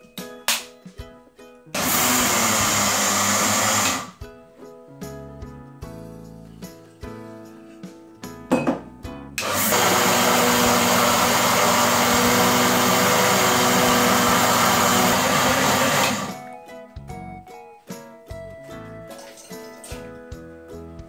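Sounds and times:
mixer grinder grinding rice: 0:01.8 - 0:04.2, 0:09.4 - 0:16.4.

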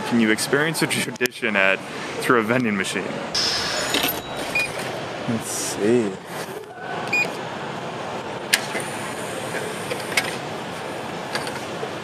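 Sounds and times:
vending machine beep: 0:03.4 - 0:05.0, 0:07.1 - 0:07.4.

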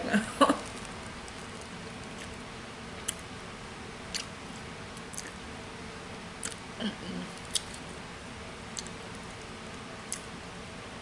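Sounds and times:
faint room hiss: 0:00.0 - 0:11.0
mouth chewing sticky candy: 0:00.6 - 0:02.4, 0:03.0 - 0:03.2, 0:04.1 - 0:05.4, 0:06.4 - 0:06.6, 0:07.2 - 0:08.0, 0:08.7 - 0:10.3
lip-smacking clicks: 0:04.1 - 0:04.3, 0:07.4 - 0:07.8, 0:08.7 - 0:09.4.

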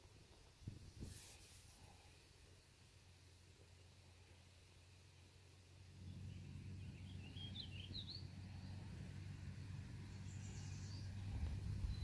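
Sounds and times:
wind rumble on microphone: 0:00.6 - 0:01.3, 0:10.7 - 0:12.0
bird chirps: 0:06.0 - 0:08.8, 0:10.1 - 0:12.0.

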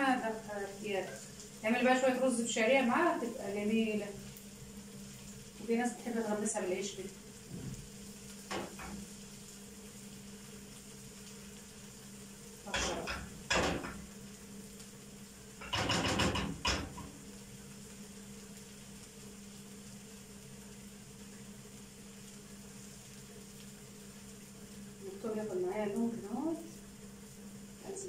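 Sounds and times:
garlic frying in a pan: 0:00.0 - 0:28.0.

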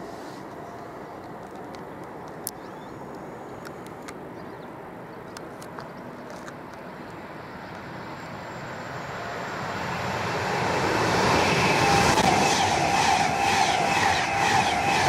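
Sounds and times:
electric train passing: 0:06.6 - 0:15.0.

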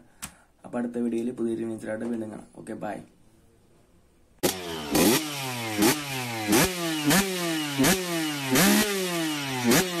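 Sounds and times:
motorcycle engine revving: 0:04.4 - 0:10.0.

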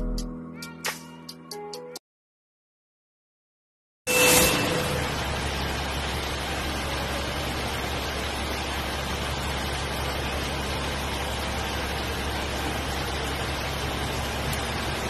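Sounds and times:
engine low hum: 0:04.8 - 0:15.0.

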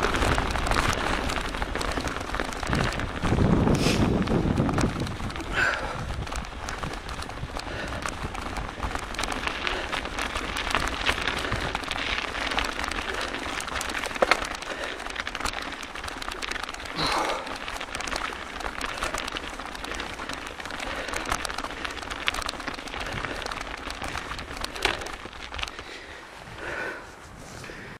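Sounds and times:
wind on microphone: 0:00.0 - 0:13.3
bike rattles and knocks: 0:00.0 - 0:27.0
bike tyres crackling on snow: 0:00.0 - 0:27.9.

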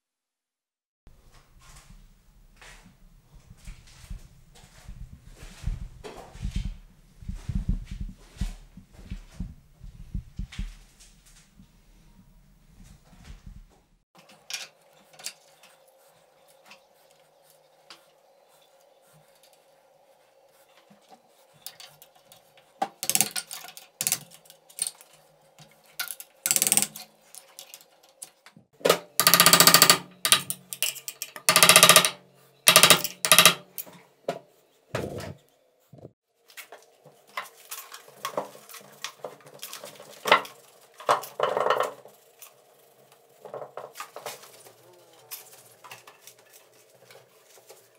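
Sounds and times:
metal parts knocking and clinking: 0:23.0 - 0:25.0, 0:26.0 - 0:33.9.

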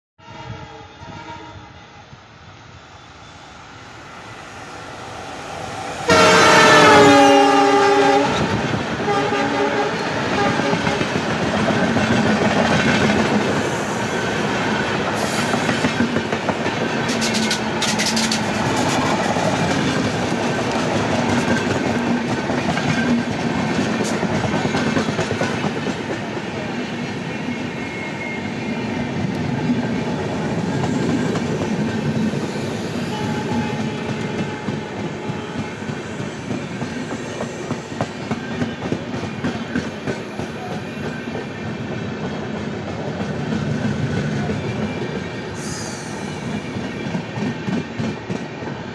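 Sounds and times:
locomotive multi-tone horn: 0:00.2 - 0:01.9, 0:06.1 - 0:11.2, 0:33.0 - 0:35.9
train coaches rumbling past: 0:00.2 - 0:48.9.

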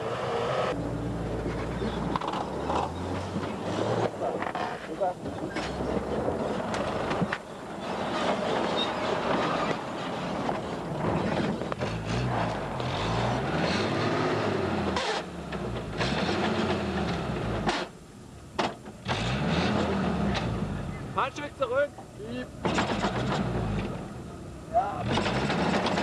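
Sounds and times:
car engine revving: 0:11.0 - 0:17.9, 0:19.0 - 0:21.1, 0:25.0 - 0:26.0.

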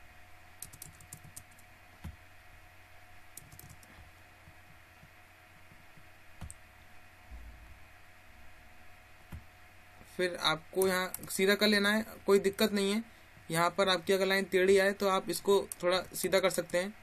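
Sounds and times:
faint hum: 0:00.0 - 0:17.0
keyboard and mouse clicks: 0:00.6 - 0:02.2, 0:03.3 - 0:06.6, 0:10.8 - 0:11.4.

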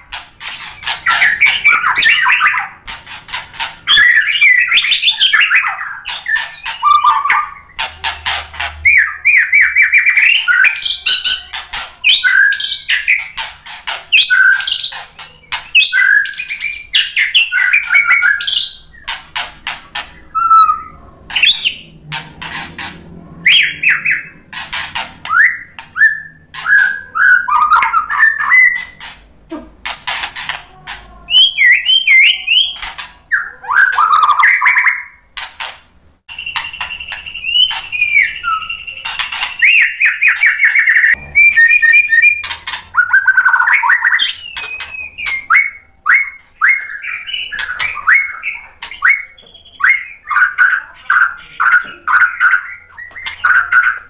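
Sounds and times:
bird singing whistled phrases: 0:03.9 - 0:07.8, 0:08.9 - 0:13.3, 0:14.1 - 0:19.0, 0:20.3 - 0:21.9, 0:25.3 - 0:29.0, 0:31.3 - 0:35.2, 0:36.3 - 0:54.0.

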